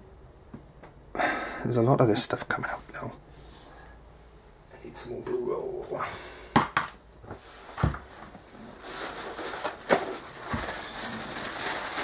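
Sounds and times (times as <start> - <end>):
paper towel rustling: 7.4 - 12.0.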